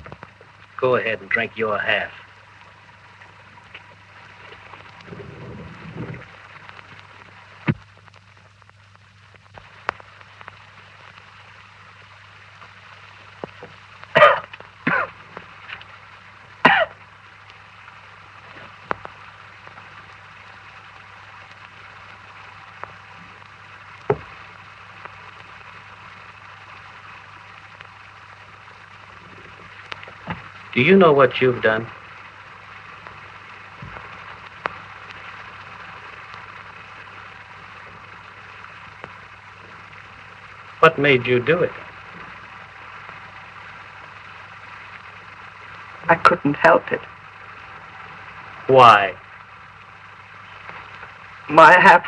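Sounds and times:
film soundtrack hum and hiss: 0.0 - 52.0
faint clicks: 2.2 - 16.0, 18.4 - 30.8, 31.6 - 40.8.

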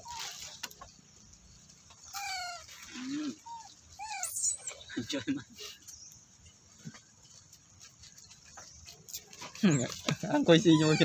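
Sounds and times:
animal squeaks: 2.0 - 4.9, 10.5 - 11.0
high animal chirp: 2.0 - 4.9, 10.5 - 11.0.

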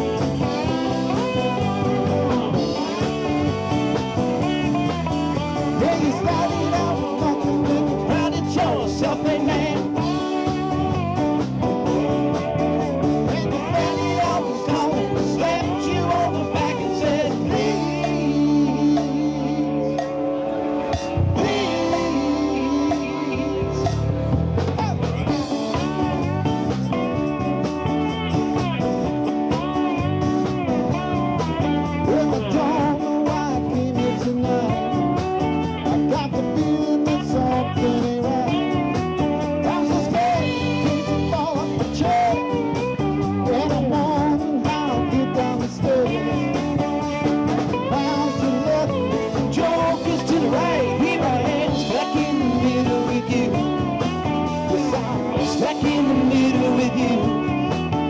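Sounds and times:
person singing: 0.0 - 27.3, 30.9 - 58.0
drum kit: 0.0 - 58.0
electric and acoustic guitars: 0.0 - 58.0.

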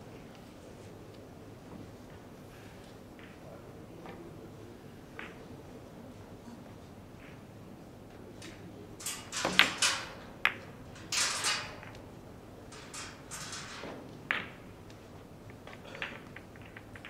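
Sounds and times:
billiard balls clacking: 8.4 - 17.0.

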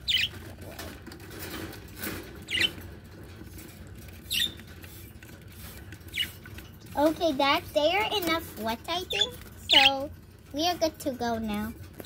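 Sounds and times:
budgerigars chirping: 0.0 - 0.4, 2.5 - 2.8, 4.3 - 4.7, 6.1 - 6.4, 9.1 - 10.0.

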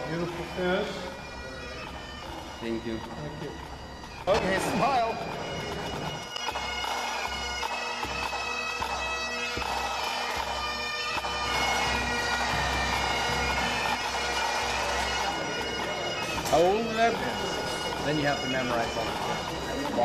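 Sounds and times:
bagpipe drones humming: 0.0 - 20.0
bagpipes playing a tune: 0.0 - 20.0.

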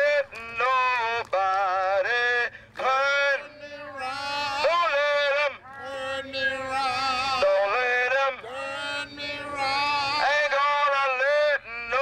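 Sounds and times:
solo singing voice: 0.0 - 12.0.

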